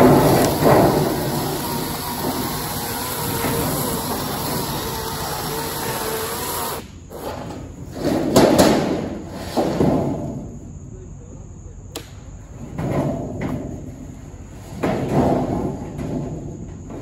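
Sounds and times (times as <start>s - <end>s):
heavy thuds of wood and debris: 0.0s - 5.0s
loud demolition noise: 0.0s - 10.6s.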